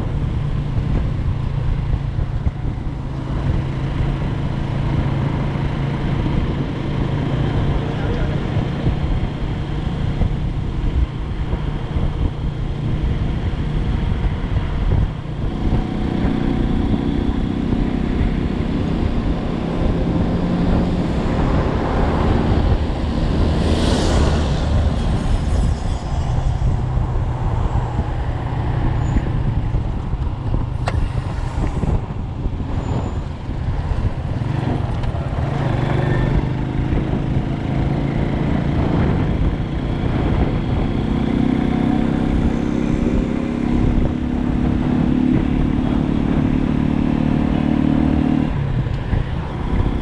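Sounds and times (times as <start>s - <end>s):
road noise: 0.0s - 50.0s
wind noise: 0.0s - 50.0s
passing vehicle rushing by: 18.2s - 50.0s.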